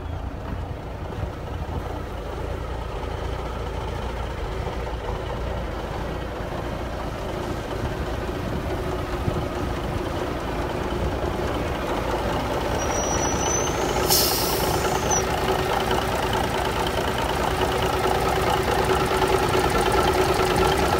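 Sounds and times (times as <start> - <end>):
diesel truck engine idling: 0.0 - 20.9
short hiss: 12.9 - 15.2.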